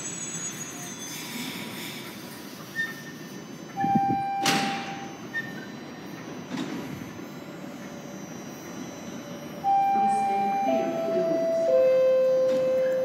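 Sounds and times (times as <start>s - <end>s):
train door clunk: 3.8s - 5.5s, 6.2s - 7.1s, 12.4s - 13.0s
single-tone beep: 3.8s - 5.7s, 9.6s - 13.0s.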